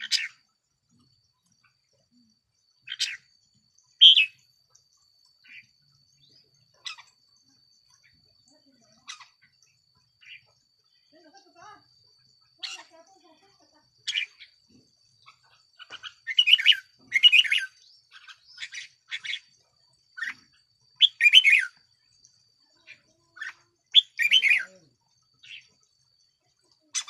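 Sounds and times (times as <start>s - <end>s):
bird chattering and warbling: 0.0s - 27.0s.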